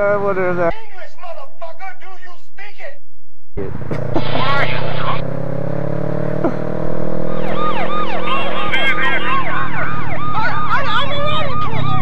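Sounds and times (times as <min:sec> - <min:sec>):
siren yelping: 0:04.1 - 0:05.2, 0:06.4 - 0:12.0.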